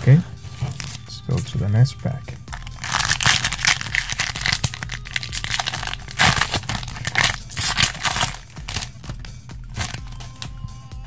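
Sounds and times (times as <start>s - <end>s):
foil pack crackling: 2.5s - 10.4s.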